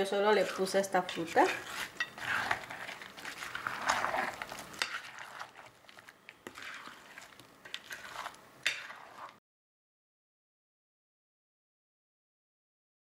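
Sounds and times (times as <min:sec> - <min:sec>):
spatula stirring thick salad: 0:00.0 - 0:09.4.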